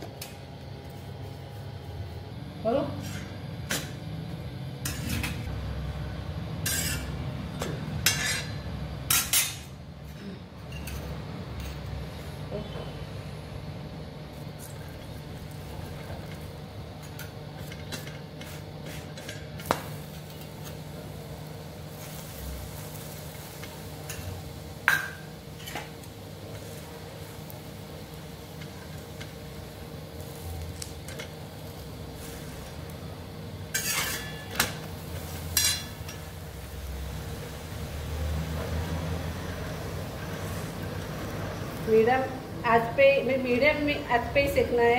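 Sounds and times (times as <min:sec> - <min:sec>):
steady low hum: 0:00.0 - 0:44.9
metal utensil clinking on griddle: 0:06.6 - 0:07.2, 0:08.0 - 0:09.7, 0:10.7 - 0:11.7, 0:23.6 - 0:25.9, 0:33.7 - 0:36.3.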